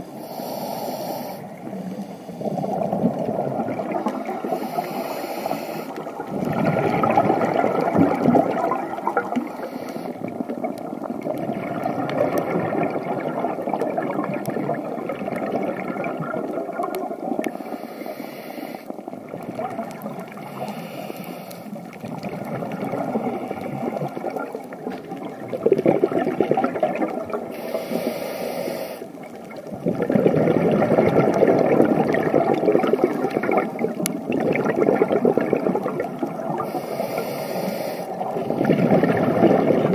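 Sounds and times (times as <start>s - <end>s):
diver inhaling through regulator: 0.0s - 3.0s, 4.4s - 6.1s, 9.3s - 10.4s, 17.5s - 19.0s, 20.3s - 21.8s, 27.5s - 29.2s, 36.6s - 39.1s
exhaled air bubbling underwater: 0.0s - 39.9s.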